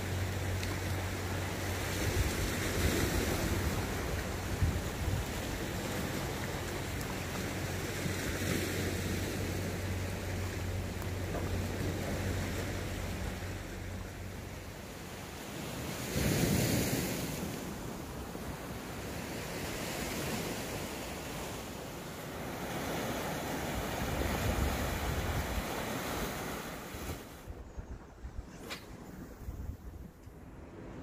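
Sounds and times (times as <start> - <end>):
sea waves washing on shore: 0.0 - 27.6
wind on microphone: 1.8 - 6.7, 23.7 - 31.0.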